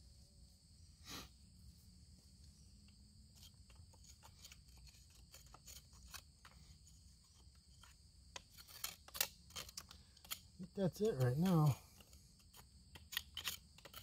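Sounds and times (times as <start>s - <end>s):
metal pick clicking and scraping rock: 3.3s - 14.0s.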